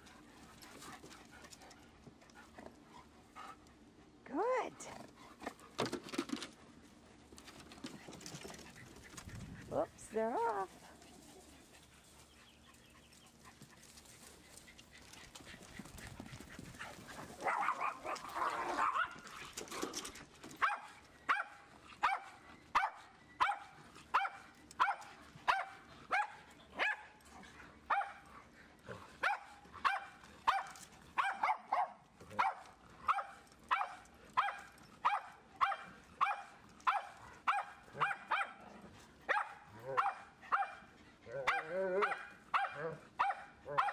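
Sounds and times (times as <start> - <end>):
dog barking: 17.4 - 19.1, 20.6 - 27.0, 27.9 - 28.2, 29.2 - 38.6, 39.3 - 43.9.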